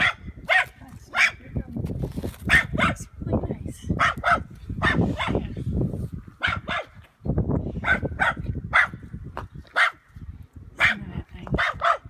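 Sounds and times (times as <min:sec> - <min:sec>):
dog barking: 0:00.0 - 0:01.4, 0:02.5 - 0:03.0, 0:04.0 - 0:05.4, 0:06.4 - 0:07.0, 0:07.8 - 0:09.0, 0:09.8 - 0:10.0, 0:10.8 - 0:11.0, 0:11.6 - 0:12.0.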